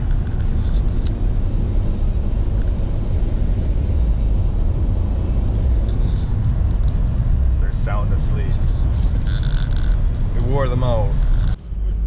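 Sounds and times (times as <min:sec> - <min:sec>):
road rumble inside vehicle: 0:00.0 - 0:12.0.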